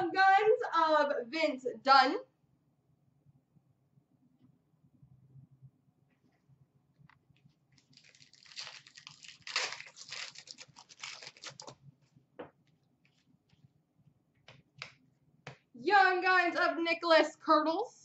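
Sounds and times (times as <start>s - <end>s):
cards clicking and rustling: 7.8s - 11.8s
foil wrapper tearing and crinkling: 7.8s - 11.8s.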